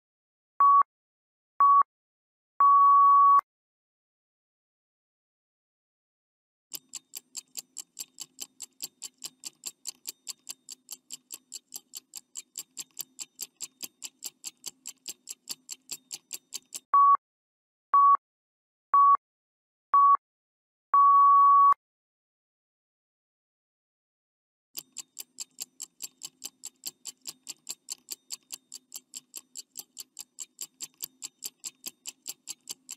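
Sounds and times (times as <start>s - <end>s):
long beep: 2.6s - 3.4s, 21.0s - 21.8s
short beeps: 2.6s - 3.4s, 17.0s - 17.2s, 18.0s - 18.2s, 19.0s - 19.2s, 20.0s - 20.2s, 21.0s - 21.8s
clock ticking fast: 6.7s - 16.9s, 24.8s - 32.9s.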